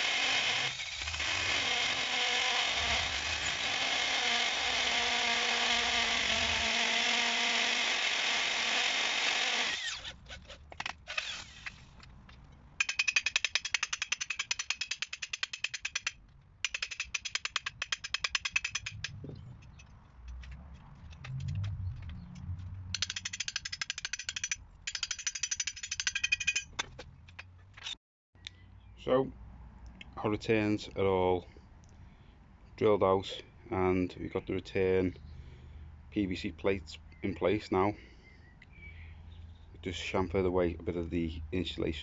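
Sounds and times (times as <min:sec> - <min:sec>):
hammer drill drilling: 0:00.0 - 0:10.1, 0:11.1 - 0:11.8.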